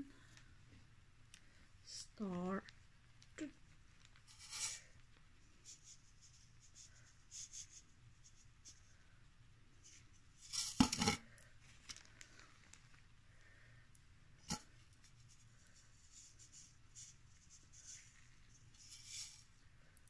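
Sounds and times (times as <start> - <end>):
plastic and paper rustling: 10.4 - 13.1
plastic crinkling: 10.7 - 13.1.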